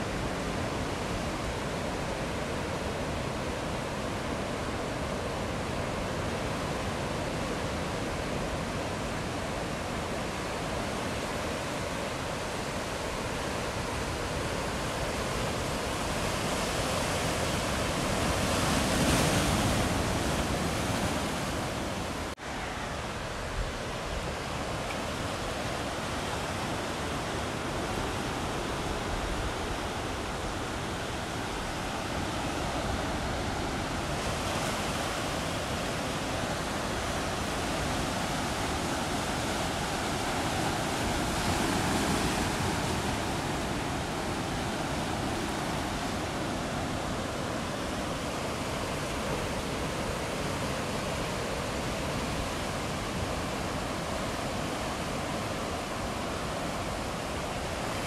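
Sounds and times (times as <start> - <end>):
ocean surf breaking: 0.0 - 58.0.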